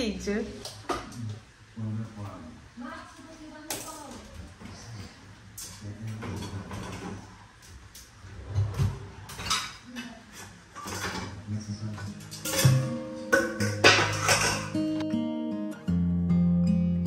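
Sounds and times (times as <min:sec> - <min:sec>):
metal pots and dishes clinking: 0:05.6 - 0:07.3, 0:09.3 - 0:15.0
dishwasher rack sliding: 0:05.7 - 0:07.5, 0:08.2 - 0:14.8.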